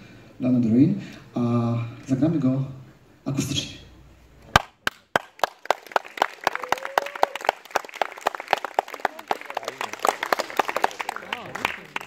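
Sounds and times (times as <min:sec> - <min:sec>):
audience applause: 0:04.6 - 0:12.0.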